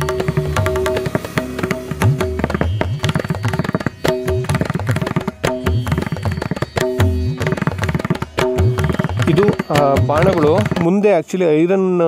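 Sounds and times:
fast hand-drum rhythm: 0:00.0 - 0:11.2
held notes: 0:00.0 - 0:11.4.

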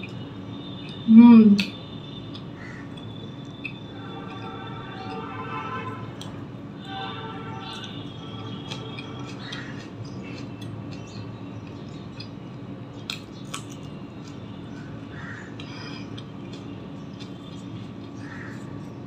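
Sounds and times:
chewing: 0:01.6 - 0:05.4, 0:07.6 - 0:19.0.

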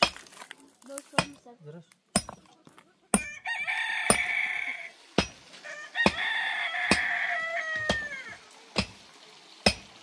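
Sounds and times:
rooster crowing: 0:03.2 - 0:05.0, 0:05.6 - 0:08.4.

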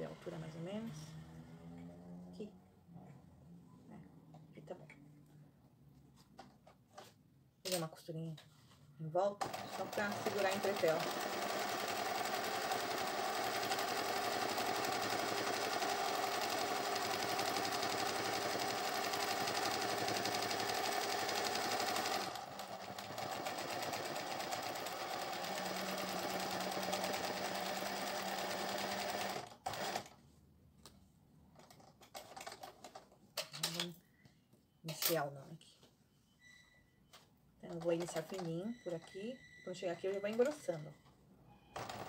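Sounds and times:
sewing machine running: 0:09.4 - 0:30.1, 0:41.8 - 0:42.0.

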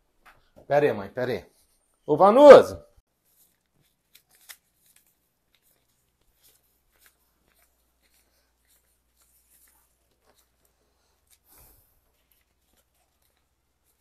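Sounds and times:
soft ticks and rustles: 0:03.2 - 0:14.0.

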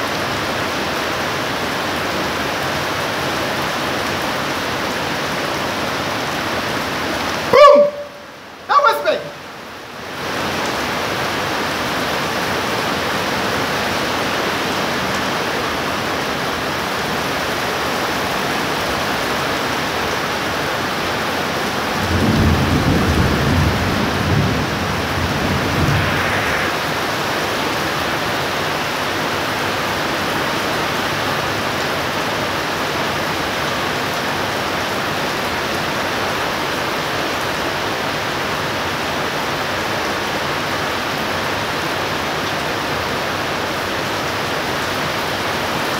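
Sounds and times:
heavy rain: 0:00.0 - 0:45.9
thunder rumbling: 0:22.0 - 0:28.1.

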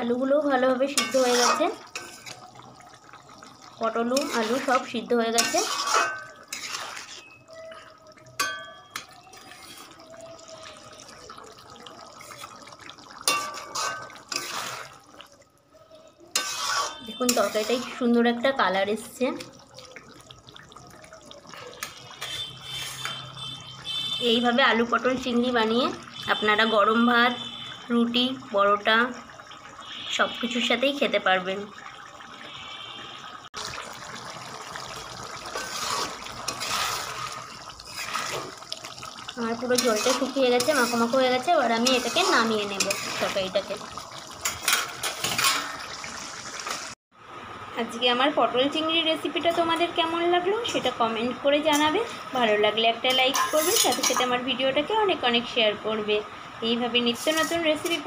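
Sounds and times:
curry simmering: 0:00.0 - 0:47.6
metal spatula clinking on pan: 0:00.9 - 0:02.2, 0:08.4 - 0:09.7, 0:13.2 - 0:14.6, 0:16.3 - 0:17.6, 0:53.1 - 0:54.3
spatula stirring and scraping curry: 0:00.9 - 0:02.5, 0:03.9 - 0:07.5, 0:08.4 - 0:10.0, 0:12.2 - 0:15.2, 0:16.3 - 0:18.0, 0:21.8 - 0:23.5, 0:35.4 - 0:43.8, 0:44.4 - 0:45.7, 0:53.3 - 0:54.2, 0:57.2 - 0:58.0.

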